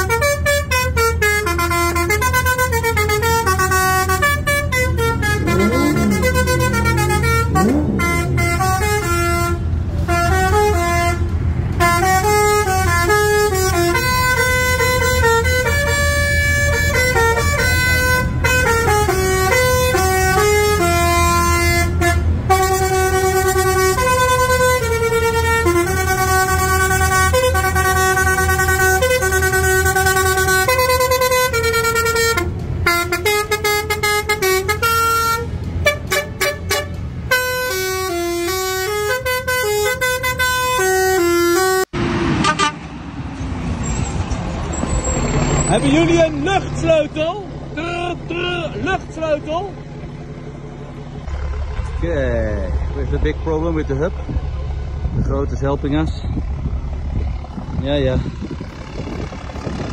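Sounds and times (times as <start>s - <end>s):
musical air horn tune: 0.0s - 42.8s
truck engine running: 0.0s - 59.9s.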